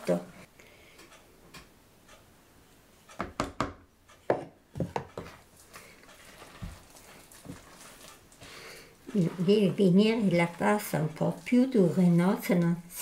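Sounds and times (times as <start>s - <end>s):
spoon stirring dough: 4.2s - 13.0s.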